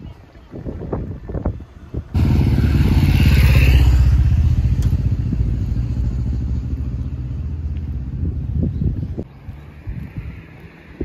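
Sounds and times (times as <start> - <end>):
motorcycle riding past: 2.1 - 8.7.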